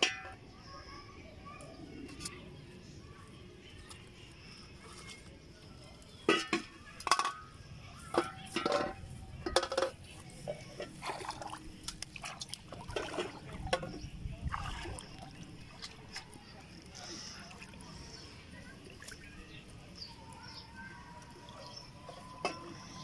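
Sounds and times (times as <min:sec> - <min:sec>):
plastic bottles knocking on metal basin: 0:06.2 - 0:10.2, 0:12.9 - 0:14.0
water splashing: 0:08.1 - 0:20.3.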